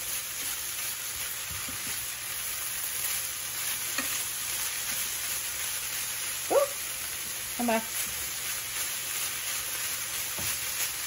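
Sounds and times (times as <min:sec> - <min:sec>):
chicken sizzling in skillet: 0:00.0 - 0:11.0
spatula scraping pan: 0:03.6 - 0:05.1.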